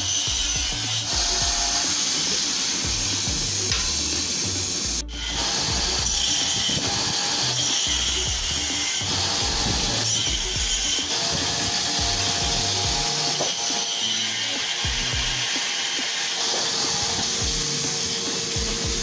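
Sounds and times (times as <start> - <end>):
angle grinder grinding metal: 0.0 - 19.0.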